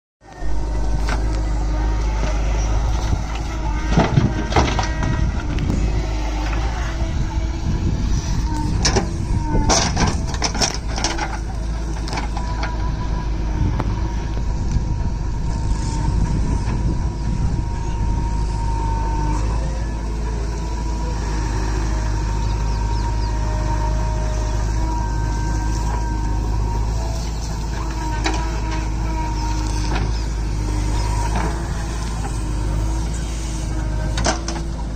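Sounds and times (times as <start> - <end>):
diesel engine under load: 0.2 - 34.9
steady whine: 0.2 - 34.9
clanks and knocks: 3.8 - 5.6, 8.8 - 12.8.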